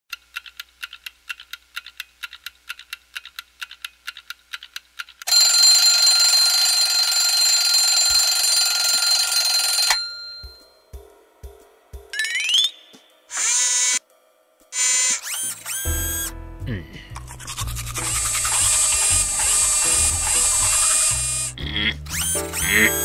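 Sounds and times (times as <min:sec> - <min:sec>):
alarm clock ticking: 0:05.3 - 0:10.7, 0:18.0 - 0:21.6
alarm clock bell ringing: 0:05.3 - 0:10.8.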